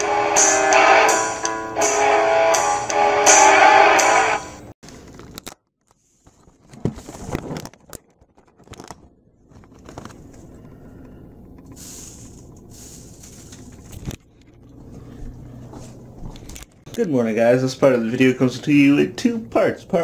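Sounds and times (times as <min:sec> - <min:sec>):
low rustle of handling: 0:05.9 - 0:16.9
cardboard door scraping and crackling: 0:06.0 - 0:09.0.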